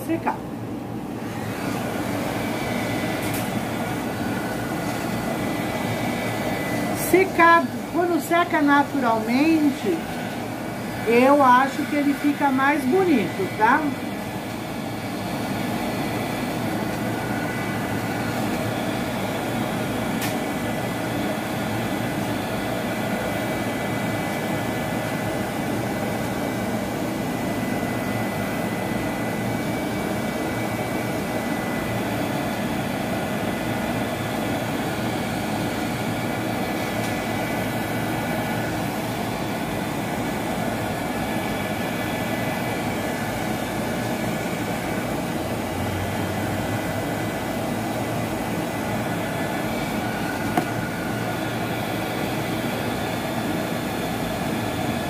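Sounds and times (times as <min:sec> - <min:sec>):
heat gun whirring: 0:01.0 - 0:55.0.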